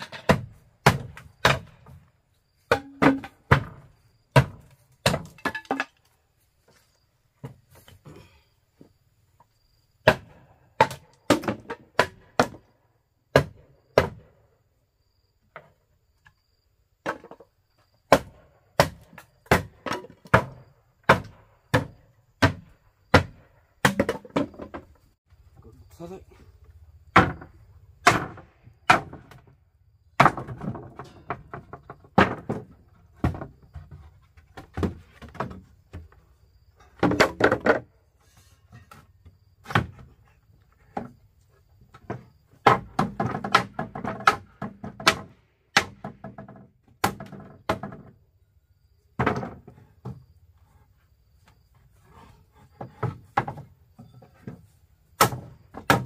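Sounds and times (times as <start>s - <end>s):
knocks and thuds of demolition work: 0.0s - 6.1s, 10.0s - 12.7s, 13.3s - 14.4s, 18.1s - 24.9s, 27.1s - 29.6s, 30.2s - 48.2s, 49.1s - 50.4s, 51.7s - 56.0s.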